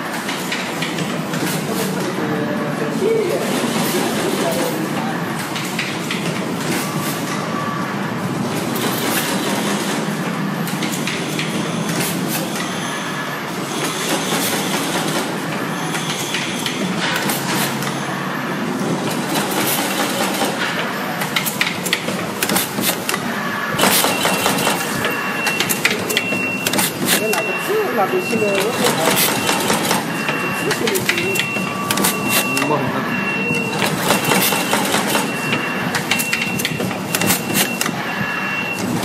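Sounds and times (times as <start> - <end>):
other machines running: 0.0 - 39.0.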